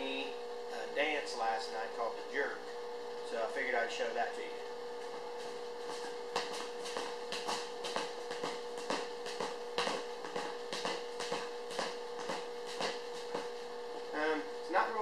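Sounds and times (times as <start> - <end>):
shoes tapping on concrete: 5.0 - 14.1.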